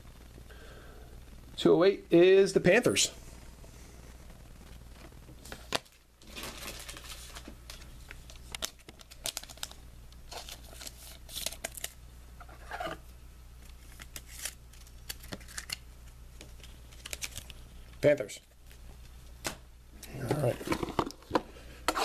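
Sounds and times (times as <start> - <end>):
cards clicking and rustling: 5.4 - 12.0, 13.7 - 15.8, 16.4 - 17.6
wrapper crinkling and tearing: 5.7 - 12.0, 13.8 - 15.8, 16.6 - 17.6.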